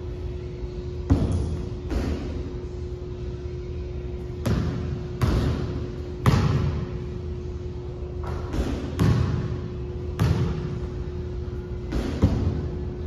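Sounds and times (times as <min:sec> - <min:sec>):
steady low hum: 0:00.0 - 0:13.0
basketball thudding on gym floor: 0:04.4 - 0:06.8, 0:08.5 - 0:09.5, 0:10.2 - 0:10.7.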